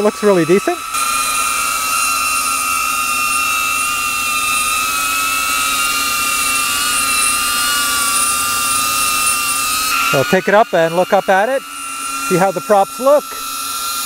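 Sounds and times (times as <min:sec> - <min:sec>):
drone propellers whining: 0:00.0 - 0:14.0.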